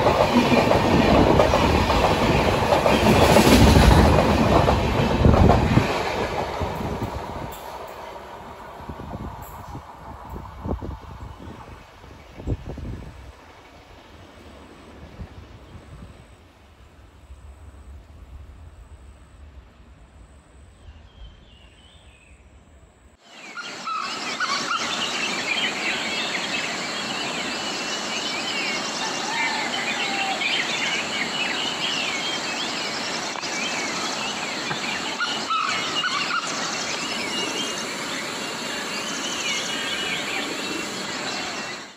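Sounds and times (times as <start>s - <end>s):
steady high hiss: 5.7s - 41.9s
many birds chirping: 23.3s - 41.9s.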